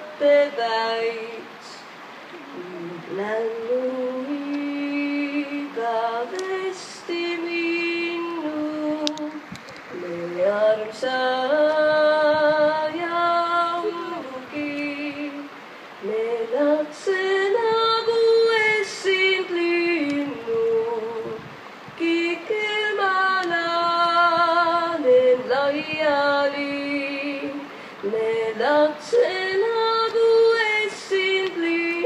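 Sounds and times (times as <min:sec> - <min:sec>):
woman singing unaccompanied: 0:00.0 - 0:32.0
singer breathing: 0:27.7 - 0:28.0.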